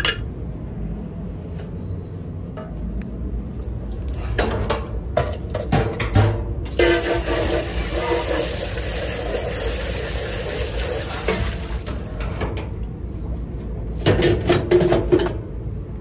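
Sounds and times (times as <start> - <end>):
utensils and cookware clattering: 4.2 - 12.8
loud steady hiss: 6.7 - 11.8.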